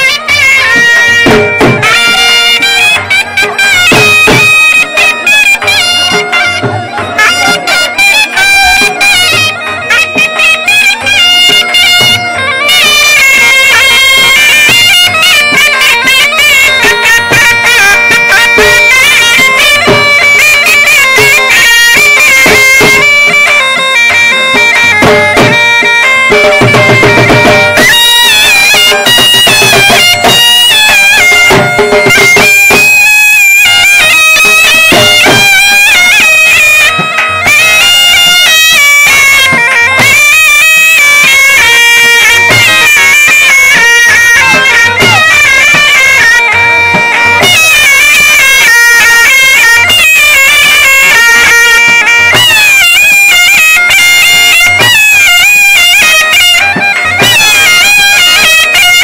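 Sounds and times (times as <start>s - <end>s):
drum beats: 0.0s - 59.0s
shrill reedy wind instrument: 0.0s - 59.0s.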